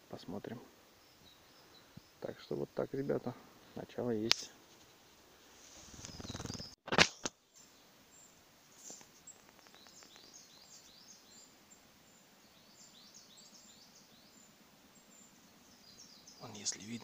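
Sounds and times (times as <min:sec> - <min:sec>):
high bird chirps: 0:05.9 - 0:06.8, 0:09.2 - 0:17.0.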